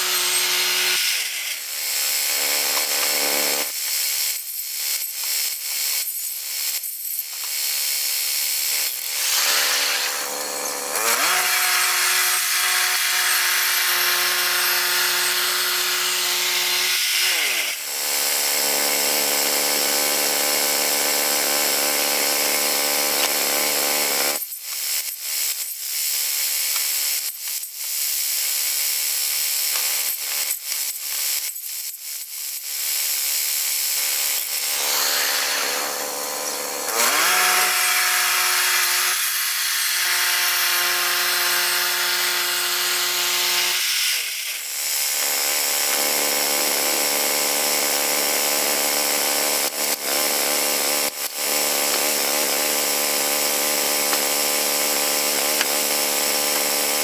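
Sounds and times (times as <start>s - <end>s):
sawmill engine running: 34.7s - 39.1s.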